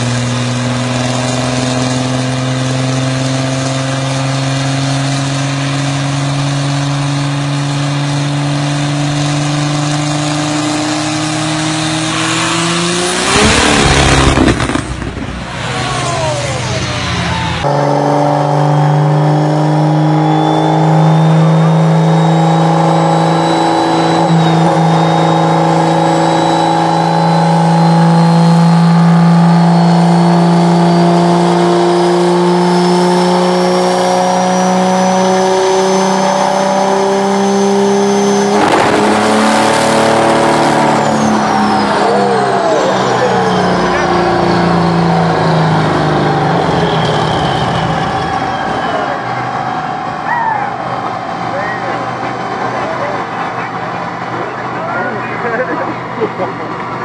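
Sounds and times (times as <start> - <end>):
diesel engine drone: 0.0 - 57.0
loud engine failure bang: 13.2 - 17.8, 38.4 - 42.0
turbo whistle: 20.2 - 31.1, 40.0 - 52.7.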